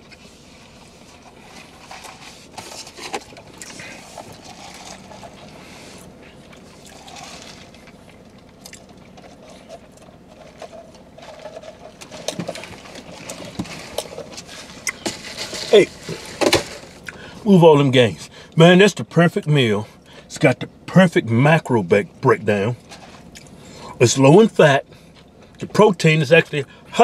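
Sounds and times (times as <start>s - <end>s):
slurping through straws: 3.6s - 8.0s.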